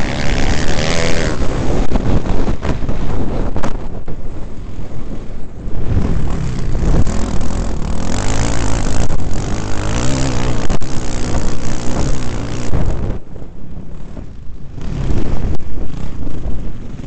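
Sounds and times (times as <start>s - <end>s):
dirt bike engine revving: 0.0s - 2.4s, 5.8s - 13.2s
wind buffeting microphone: 0.0s - 17.0s.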